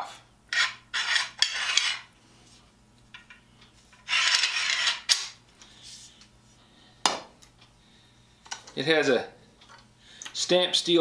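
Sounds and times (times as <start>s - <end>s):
pipe clamp scraping on metal pipe: 0.5s - 2.1s, 4.0s - 5.2s.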